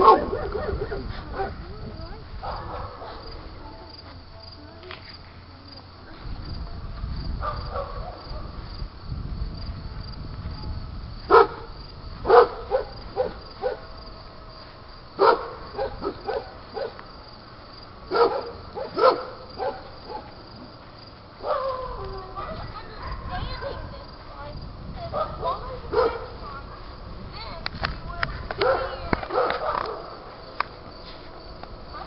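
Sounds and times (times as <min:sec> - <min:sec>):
dog barking: 0:00.0 - 0:01.6, 0:02.4 - 0:03.3, 0:07.4 - 0:08.5, 0:11.3 - 0:11.7, 0:12.3 - 0:13.9, 0:15.2 - 0:17.0, 0:18.1 - 0:20.3, 0:21.4 - 0:23.9, 0:25.1 - 0:26.4, 0:28.6 - 0:30.1
insects chirping: 0:00.0 - 0:32.0.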